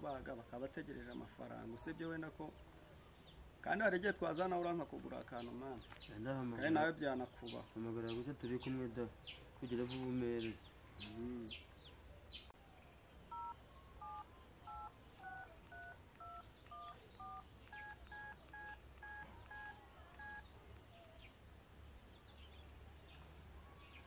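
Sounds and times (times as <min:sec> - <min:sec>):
faint telephone keypad beeps: 0:13.3 - 0:20.4.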